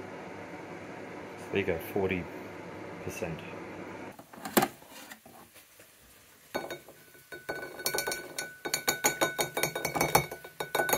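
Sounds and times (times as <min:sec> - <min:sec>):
rack clinking against ceramic plate: 0:06.6 - 0:10.9.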